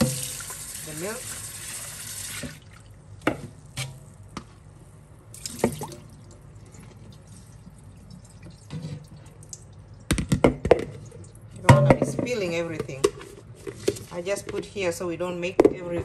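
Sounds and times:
water dripping: 5.3s - 10.1s
water pouring into metal sink: 5.4s - 9.2s.

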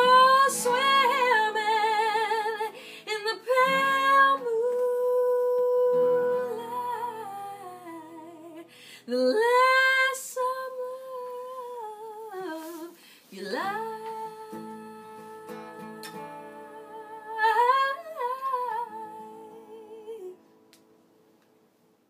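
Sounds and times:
strummed acoustic guitar: 0.0s - 8.8s, 13.4s - 19.6s.

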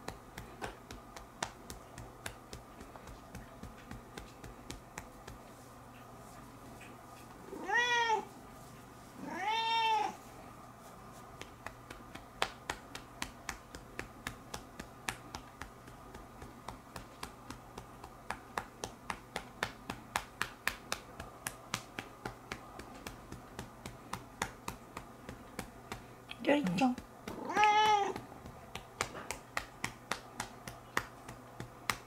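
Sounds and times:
cat meowing: 7.5s - 8.3s, 9.2s - 10.2s, 27.3s - 28.2s.

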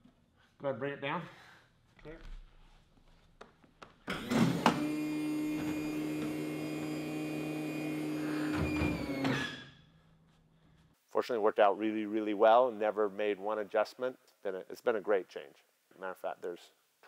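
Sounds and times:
hydraulic pump running: 4.1s - 9.6s.

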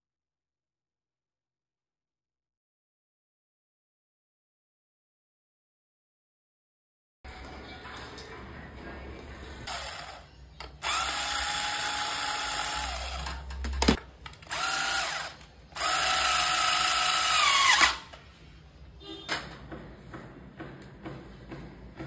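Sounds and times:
cordless drill motor whine: 10.8s - 13.3s, 14.4s - 18.0s.

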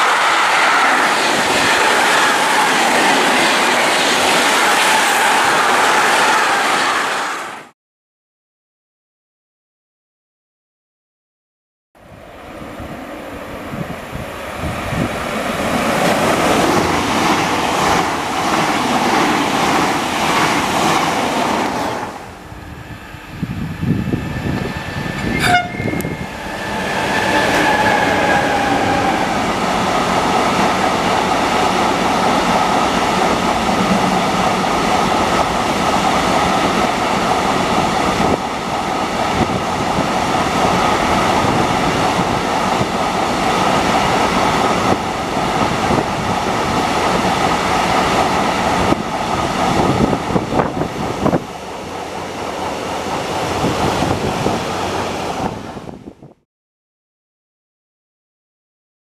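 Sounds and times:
locomotive whine: 0.0s - 7.6s, 20.0s - 55.8s
train wheels roaring on rails: 0.0s - 7.7s, 12.0s - 56.2s.

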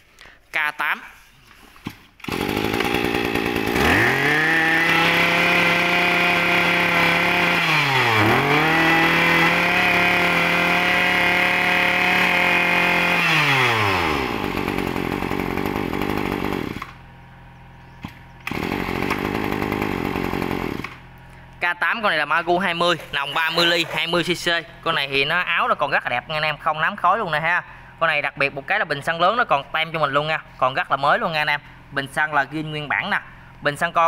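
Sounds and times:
brush cutter engine revving: 2.2s - 17.3s, 18.0s - 25.7s.

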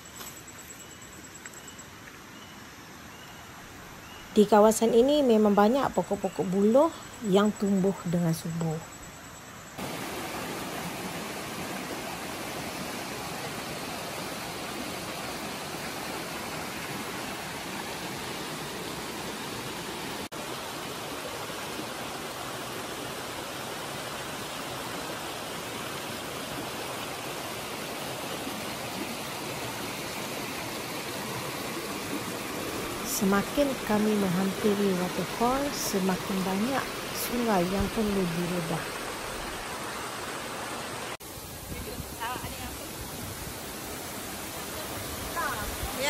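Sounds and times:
stream rushing over stones: 9.8s - 46.0s.

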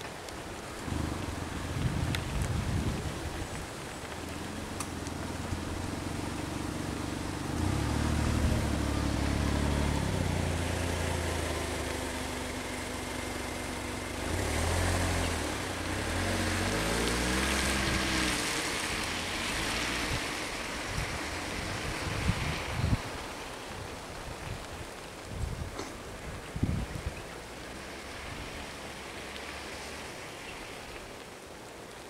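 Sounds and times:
rain hiss: 0.0s - 32.0s
vehicle engines revving: 4.3s - 24.1s, 27.4s - 31.1s.

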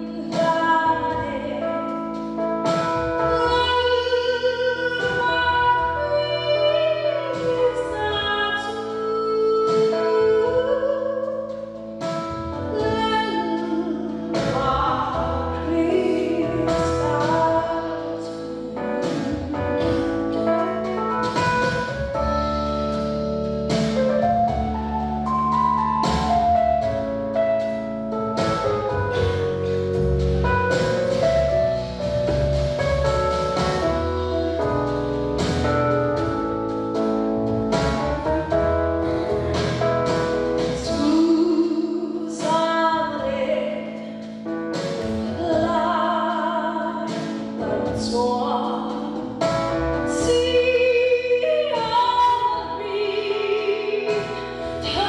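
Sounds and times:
woman singing into microphone: 0.0s - 1.9s, 3.2s - 11.6s, 12.7s - 21.8s, 40.8s - 44.2s, 45.1s - 49.4s, 50.1s - 55.0s
instrumental accompaniment: 0.0s - 55.0s.

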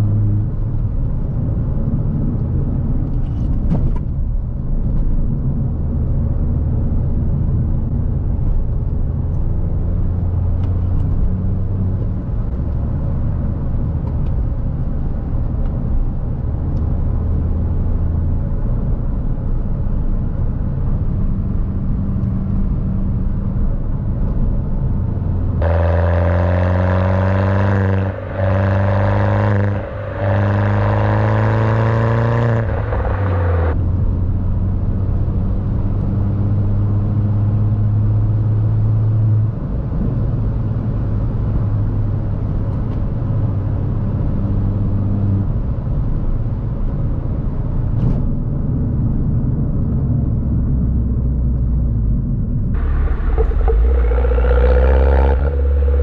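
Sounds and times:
car engine droning: 0.0s - 56.0s
car engine accelerating hard: 24.9s - 47.2s, 47.8s - 56.0s.

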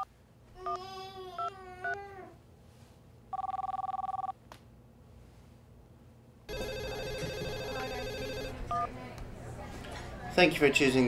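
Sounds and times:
keypad beep: 6.5s - 8.9s
telephone two-tone ring: 6.5s - 8.9s.

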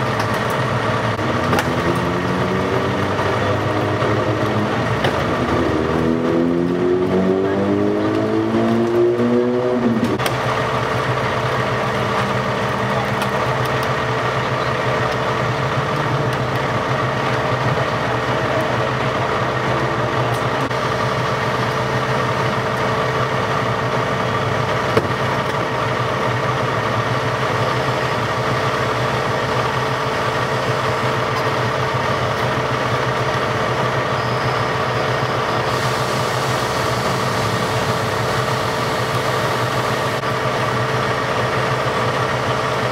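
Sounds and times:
vehicle engine idling: 0.0s - 42.9s
rising motor whine: 1.2s - 10.2s.

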